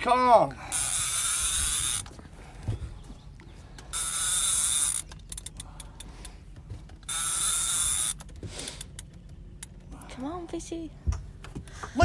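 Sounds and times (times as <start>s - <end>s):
fishing reel drag buzzing: 0.7s - 2.1s, 3.9s - 5.5s, 7.1s - 8.8s.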